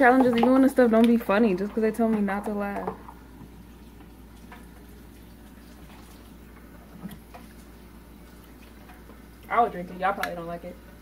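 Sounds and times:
liquid being stirred: 0.0 - 9.6.

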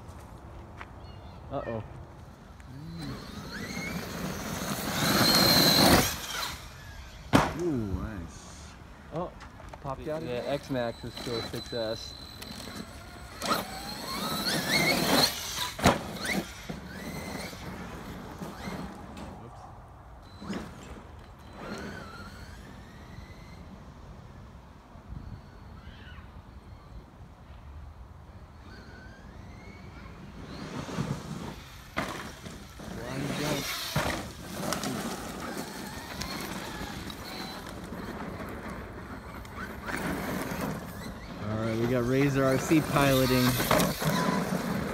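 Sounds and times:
electric motor whining: 2.5 - 8.8, 10.0 - 19.1, 28.6 - 44.9
sharp thump: 7.3 - 7.6
tyres crunching on dirt: 30.8 - 44.9.

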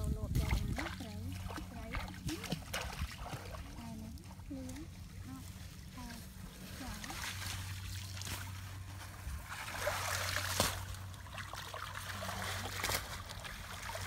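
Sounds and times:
shallow water splashing and trickling: 0.0 - 14.0.

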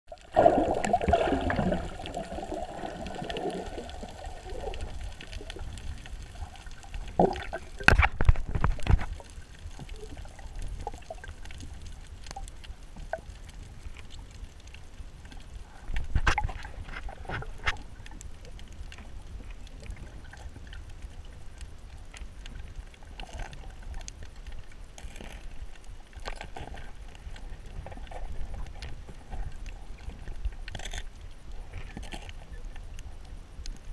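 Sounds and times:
underwater bubbling rush: 0.1 - 21.7
low underwater rumble: 0.1 - 33.9.

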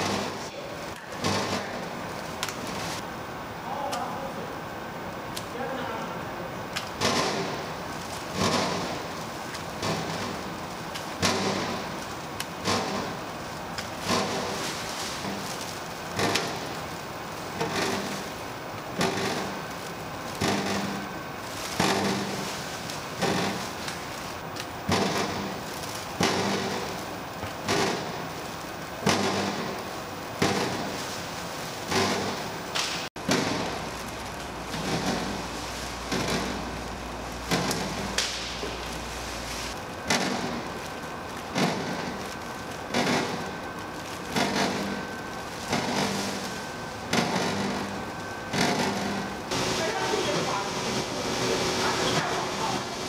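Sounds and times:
machinery humming: 0.0 - 53.0
steady background noise: 0.0 - 53.0.

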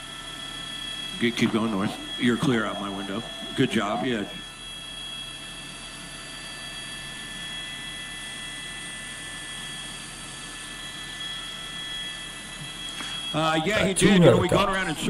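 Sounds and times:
high-pitched whining tones: 0.0 - 8.6, 9.6 - 15.0
helicopter turbine and rotors: 0.0 - 15.0.

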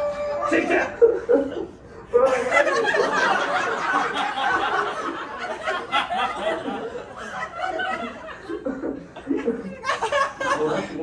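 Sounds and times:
audience laughing: 2.3 - 11.0.

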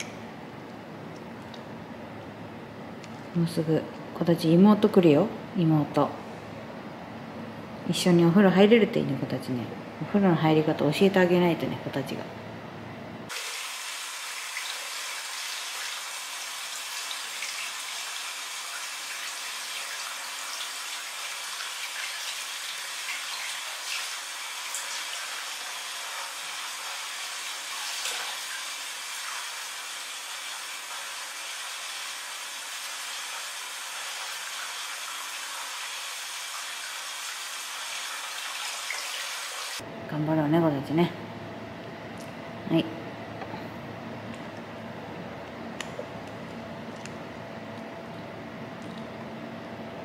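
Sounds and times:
water running from a tap: 13.3 - 39.8.

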